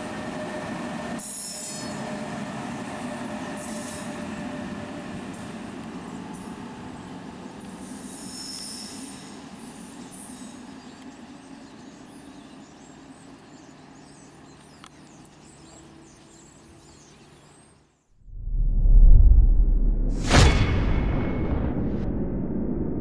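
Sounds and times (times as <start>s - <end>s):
train wheel squeal: 0.0s - 5.5s, 7.6s - 11.0s
passenger train rolling on rails: 0.0s - 17.0s.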